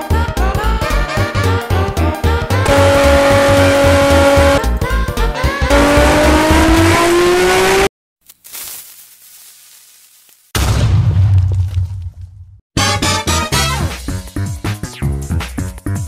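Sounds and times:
held whining tone: 2.6s - 4.6s, 5.7s - 7.9s
tone rising in pitch: 2.6s - 4.6s, 5.7s - 7.9s
music with pulsing bass beat: 2.6s - 4.7s.

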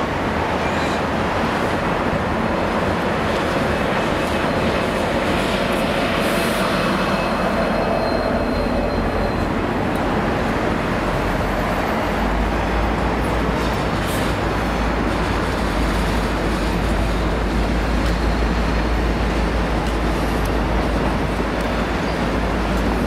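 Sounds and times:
train carriages rumbling on rails: 0.0s - 23.0s.

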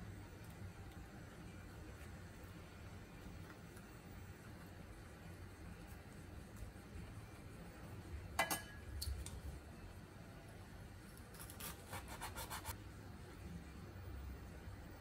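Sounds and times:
knife sawing on cutting board: 11.8s - 12.7s.

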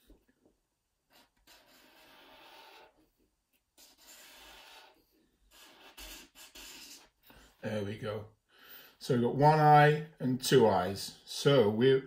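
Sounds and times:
marker pen scratching on paper: 1.1s - 7.3s.

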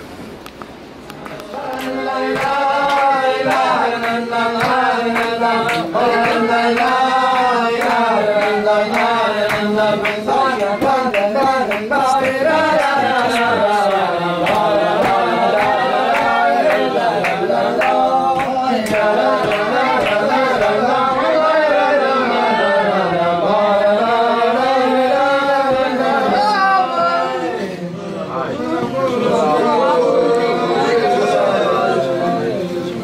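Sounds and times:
sharp clap-like beats: 1.1s - 21.1s
men singing together: 1.5s - 33.0s.

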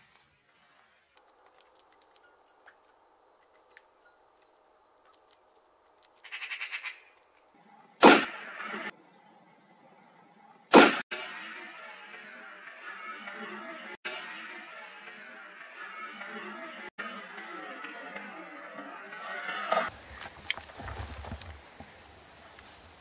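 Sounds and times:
rifle shots with echo: 8.0s - 8.4s, 10.7s - 11.0s.

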